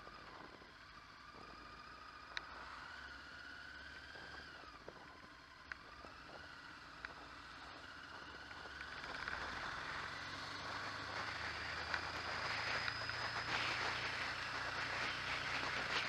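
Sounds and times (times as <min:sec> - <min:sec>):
motorcycle engine: 0:00.0 - 0:16.0
wind noise: 0:09.4 - 0:16.0.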